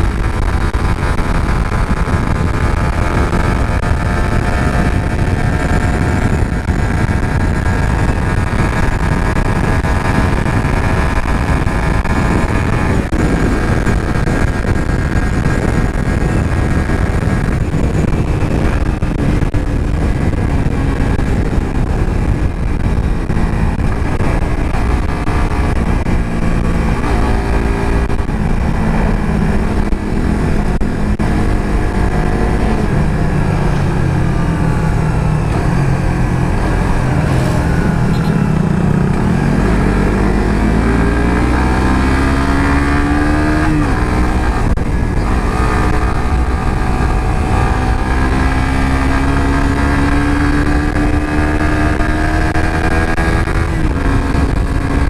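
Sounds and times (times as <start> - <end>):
motorcycle engine: 0.0 - 55.0
wind noise: 0.0 - 55.0.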